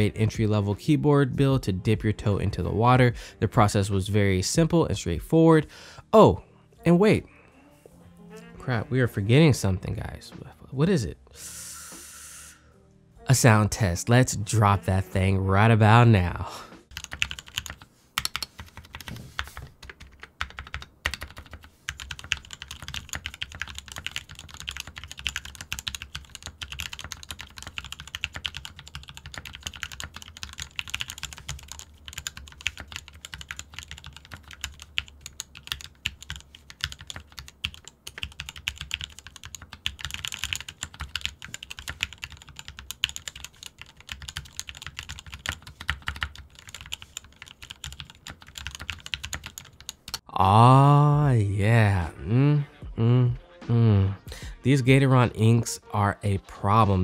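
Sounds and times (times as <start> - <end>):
mechanical keyboard typing: 16.9 - 50.2.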